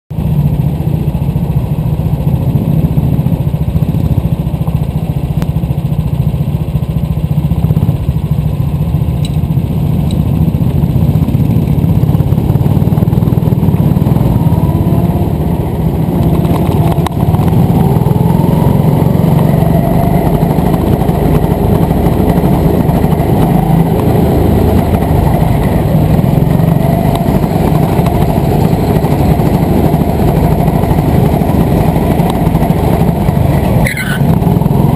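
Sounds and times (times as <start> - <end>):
go-kart engines revving: 9.5 - 34.9.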